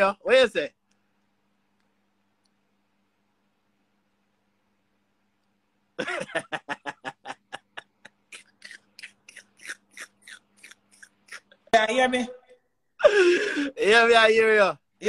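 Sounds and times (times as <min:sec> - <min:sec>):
man laughing: 0:06.0 - 0:11.7, 0:13.0 - 0:13.8.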